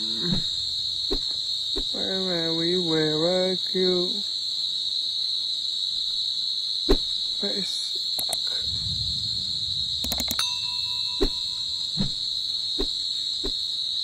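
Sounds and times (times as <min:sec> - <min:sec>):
crickets trilling: 0:00.0 - 0:14.0
sharp click: 0:08.2 - 0:08.5, 0:10.0 - 0:10.4
low rumble: 0:08.2 - 0:13.4.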